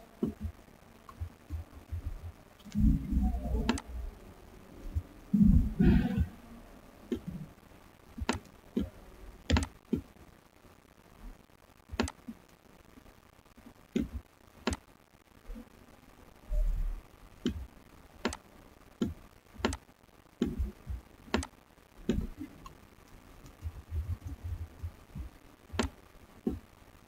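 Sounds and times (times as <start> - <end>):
computer mouse clicks: 1.1 - 3.9, 8.2 - 10.0, 11.9 - 12.4, 13.9 - 14.8, 17.4 - 18.4, 19.0 - 19.8, 21.3 - 24.9, 25.7 - 26.6.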